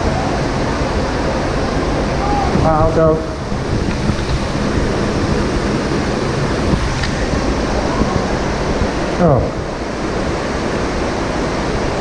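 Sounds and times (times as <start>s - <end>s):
rushing hiss of falling water: 0.0s - 12.0s.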